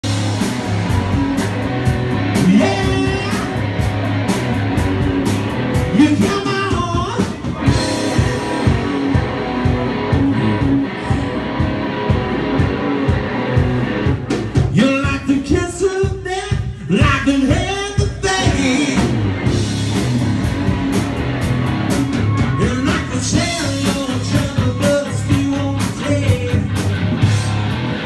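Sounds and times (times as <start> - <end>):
electric guitar: 0.0 - 28.0
live rock band: 0.0 - 28.0
person singing: 2.4 - 3.6, 5.9 - 11.7, 14.8 - 19.2, 22.3 - 27.7.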